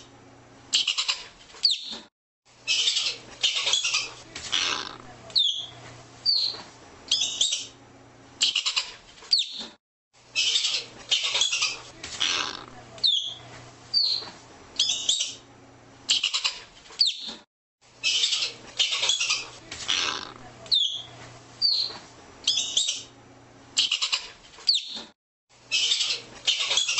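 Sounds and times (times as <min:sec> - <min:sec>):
ground squirrel chattering: 0:00.8 - 0:01.2, 0:08.4 - 0:09.0, 0:10.4 - 0:13.4, 0:16.1 - 0:16.6, 0:18.0 - 0:21.0, 0:23.8 - 0:24.3.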